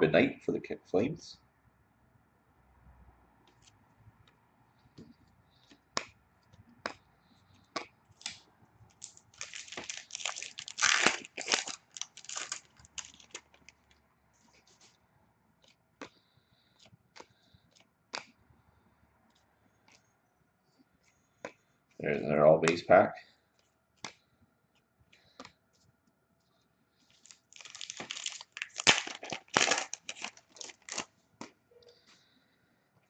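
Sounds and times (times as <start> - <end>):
wrapper tearing and crinkling: 8.2 - 13.8, 27.2 - 31.1.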